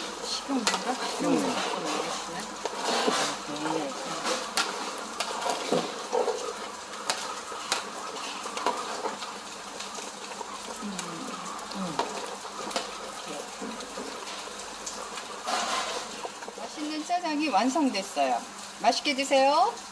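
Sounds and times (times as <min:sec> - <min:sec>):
ladle stirring thick sauce: 0:00.0 - 0:10.8.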